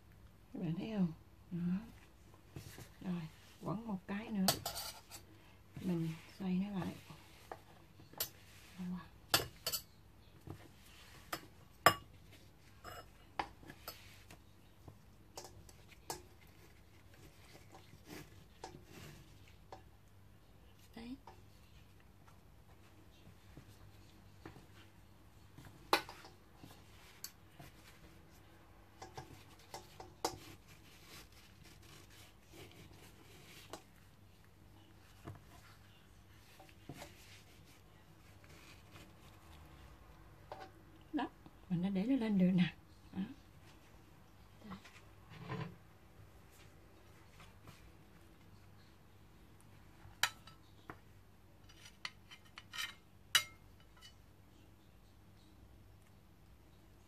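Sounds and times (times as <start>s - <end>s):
kitchen utensils and dishes clinking: 9.3s - 10.0s, 12.8s - 14.1s.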